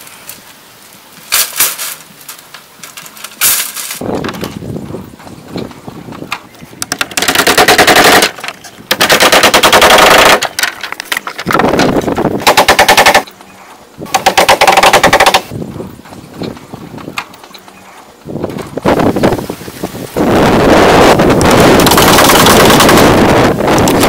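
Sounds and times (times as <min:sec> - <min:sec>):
rapid rattling clicks: 0:06.8 - 0:13.3, 0:14.1 - 0:15.5, 0:21.3 - 0:24.0.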